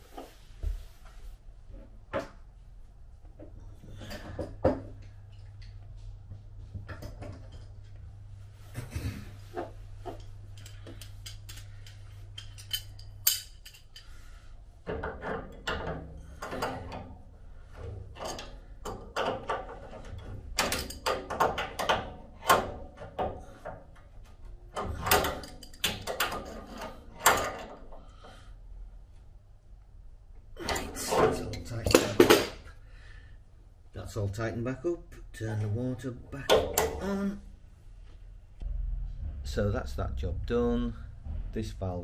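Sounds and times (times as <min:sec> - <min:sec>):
spanner clicking and scraping on nut: 0:10.2 - 0:14.1.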